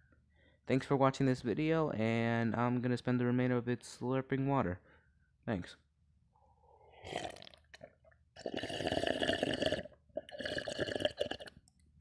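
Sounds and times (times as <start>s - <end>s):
person slurping water: 6.9s - 11.7s.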